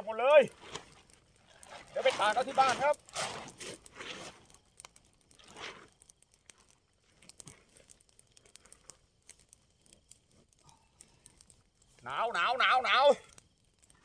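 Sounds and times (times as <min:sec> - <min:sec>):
light crackles: 0:00.0 - 0:14.0
tent fabric rustling: 0:00.6 - 0:04.5.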